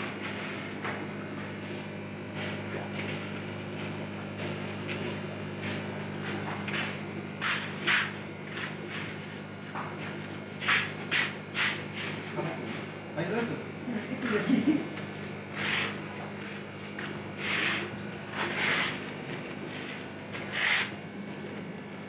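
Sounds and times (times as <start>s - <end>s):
aquarium air pump buzzing: 0.0s - 22.0s
short scuffing noises: 1.7s - 12.3s, 15.6s - 21.2s.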